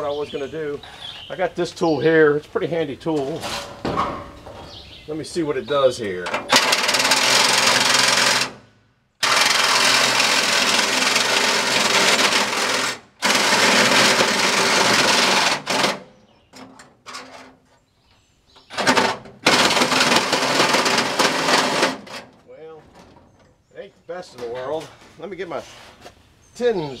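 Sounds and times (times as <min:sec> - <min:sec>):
power tool cutting sheet metal: 0:06.5 - 0:08.6, 0:09.2 - 0:16.1, 0:18.7 - 0:22.3.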